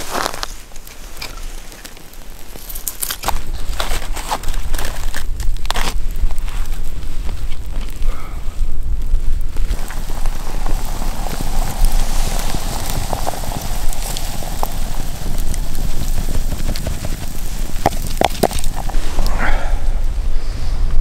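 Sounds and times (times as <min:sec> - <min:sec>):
burning logs crackling: 0:00.0 - 0:21.0
water boiling in kettle: 0:09.4 - 0:19.3.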